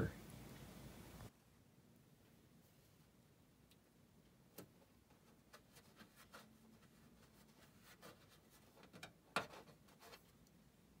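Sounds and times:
fingertips tapping and scraping: 4.6s - 10.5s.

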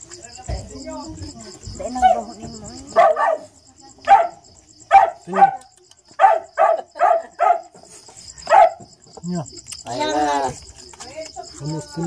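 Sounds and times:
small dog barking: 3.0s - 7.8s, 8.5s - 8.8s.

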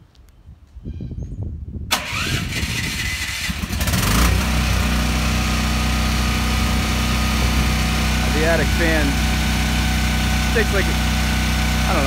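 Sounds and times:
portable generator running: 2.0s - 12.0s.

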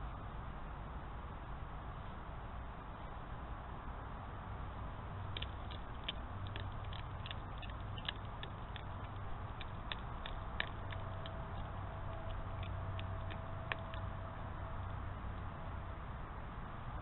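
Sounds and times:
faint steady tone: 0.0s - 17.0s
steady low hum: 0.0s - 17.0s
fox chewing crunchily: 5.2s - 15.5s.

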